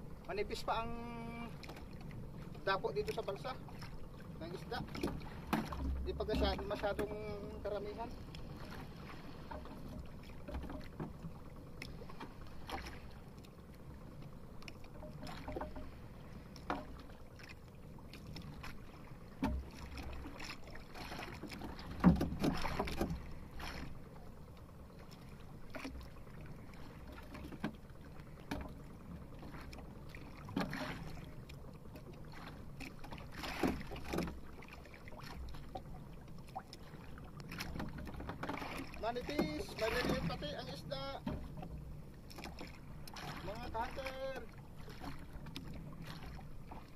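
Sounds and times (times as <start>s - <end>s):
water sloshing against hull: 0.0s - 46.9s
knocks on boat: 4.5s - 7.7s, 9.4s - 11.3s, 14.9s - 15.9s, 16.6s - 17.0s, 19.4s - 24.0s, 28.4s - 28.8s, 37.5s - 46.9s.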